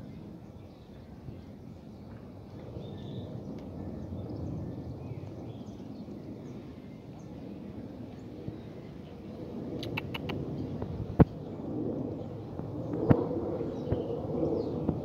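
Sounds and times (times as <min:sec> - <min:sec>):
wind rumble on microphone: 0:00.0 - 0:15.0.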